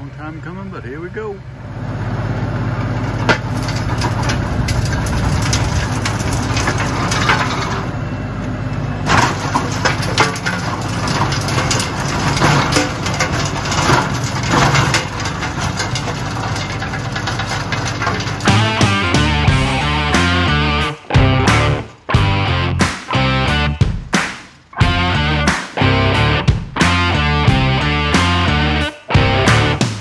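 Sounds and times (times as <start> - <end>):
diesel tractor engine running: 0.0 - 23.9, 24.8 - 30.0
tiller tines cracking and knocking: 2.6 - 8.0, 9.0 - 22.2.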